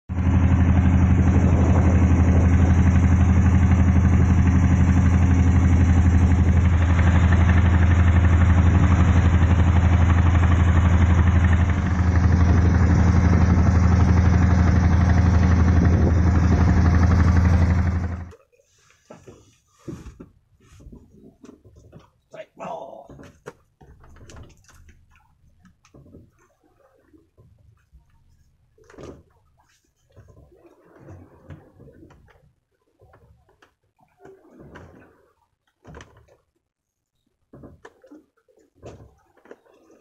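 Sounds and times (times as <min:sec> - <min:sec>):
boat engine drone: 0:00.1 - 0:18.4.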